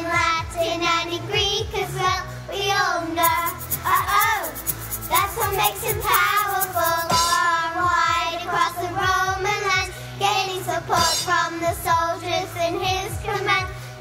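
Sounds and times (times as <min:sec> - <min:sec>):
children singing pop song: 0:00.0 - 0:14.0
backing track with steady beat: 0:03.2 - 0:08.3.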